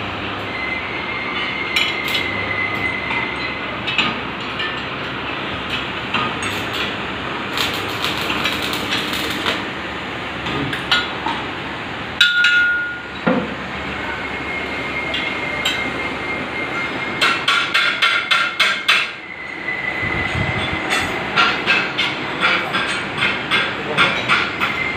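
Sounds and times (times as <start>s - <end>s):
workshop background noise: 0.0s - 24.9s
hammer strikes on metal: 17.2s - 19.2s, 21.0s - 24.8s.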